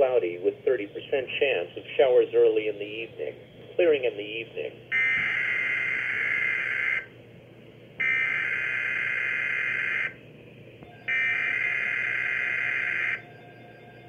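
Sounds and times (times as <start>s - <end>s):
buzzing data tones from radio: 10.9s - 14.0s.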